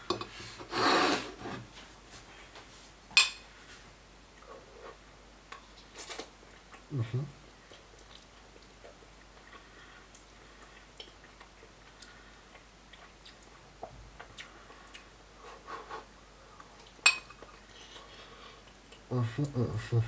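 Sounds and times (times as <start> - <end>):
quiet chewing: 4.3 - 19.9.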